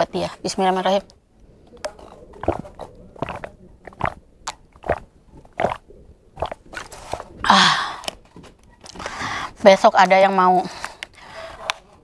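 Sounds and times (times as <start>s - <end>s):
person gulping water: 1.8s - 8.3s.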